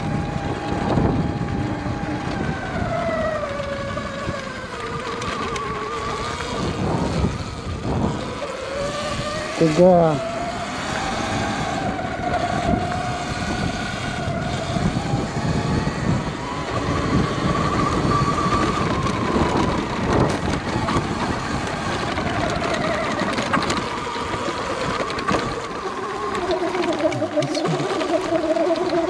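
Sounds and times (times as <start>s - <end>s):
electric motor whine: 0.0s - 29.0s
wind on microphone: 0.0s - 29.0s.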